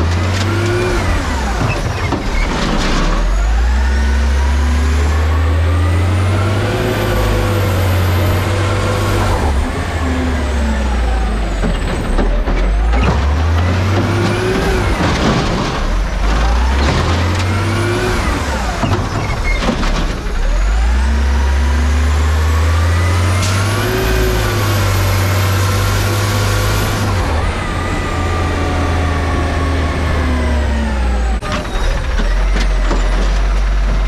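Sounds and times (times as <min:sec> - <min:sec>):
truck diesel engine: 0:00.0 - 0:34.0
knocks and rattles: 0:11.5 - 0:17.8, 0:18.7 - 0:20.4.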